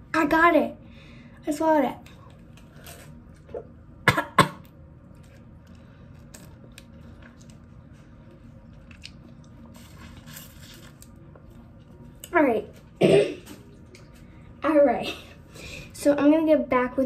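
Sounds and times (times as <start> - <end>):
person coughing: 4.0 - 4.7, 13.0 - 13.6
chewing and mouth clicks: 8.6 - 11.2.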